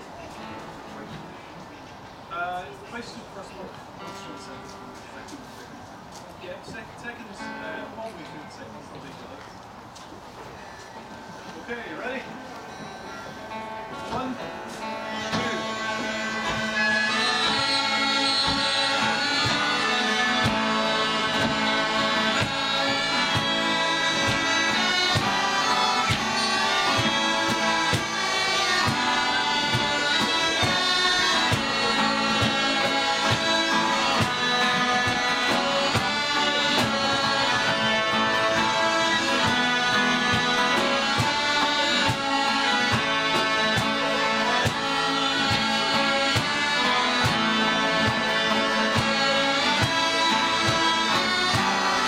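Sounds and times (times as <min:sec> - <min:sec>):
strummed acoustic guitars: 0:00.0 - 0:08.6, 0:12.0 - 0:52.0
smallpipes playing with drones: 0:14.8 - 0:52.0.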